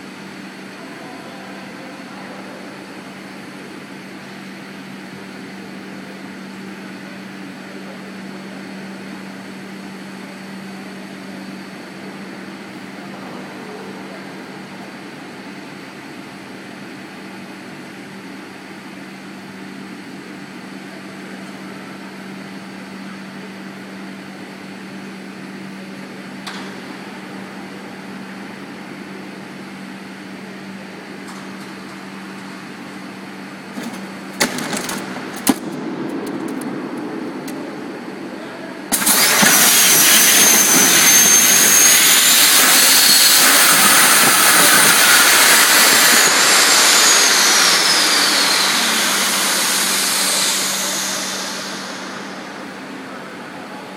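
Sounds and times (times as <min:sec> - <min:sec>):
steady low hum: 0:19.4 - 0:53.9
hissing air with whistling tones: 0:38.9 - 0:53.0.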